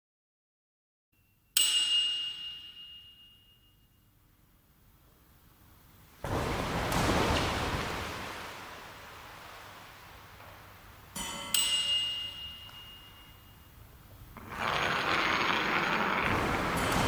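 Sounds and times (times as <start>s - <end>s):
bright struck ring: 1.2s - 4.1s, 11.2s - 13.8s
steady rushing noise: 14.4s - 17.0s.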